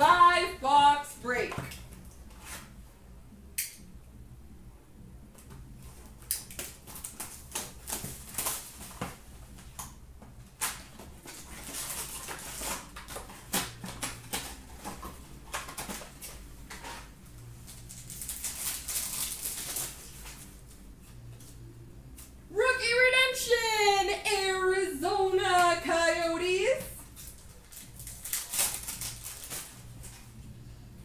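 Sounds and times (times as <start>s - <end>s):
low steady hum: 0.0s - 31.0s
wrappers ripping: 6.2s - 9.2s, 9.8s - 21.4s, 27.0s - 30.4s
card wrappers crinkling: 6.3s - 9.3s, 10.5s - 21.4s, 27.0s - 30.4s.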